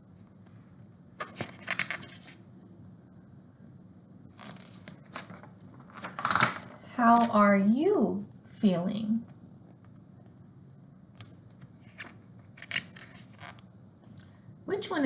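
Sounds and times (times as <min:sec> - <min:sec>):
book pages rustling: 0:01.2 - 0:02.4, 0:04.3 - 0:07.4, 0:11.4 - 0:13.7.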